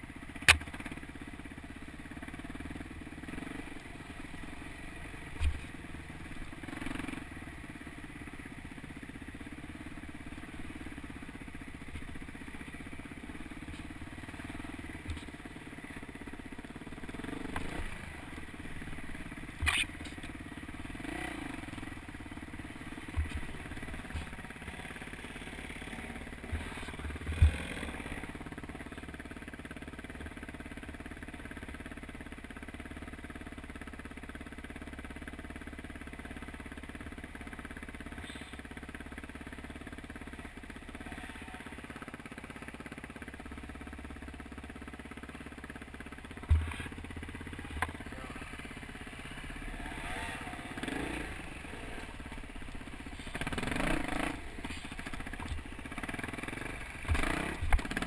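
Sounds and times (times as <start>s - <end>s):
dirt bike engine revving: 2.0s - 8.5s, 9.3s - 30.2s, 46.1s - 58.0s.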